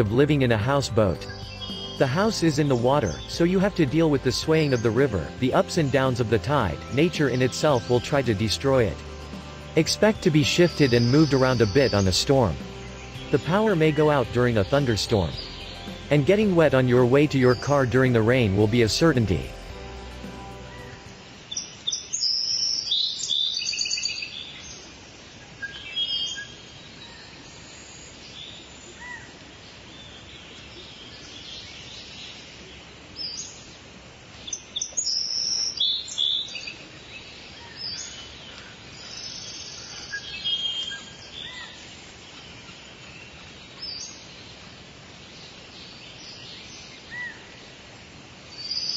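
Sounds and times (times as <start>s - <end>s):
birds chirping: 0.0s - 24.7s
background hiss: 0.0s - 48.9s.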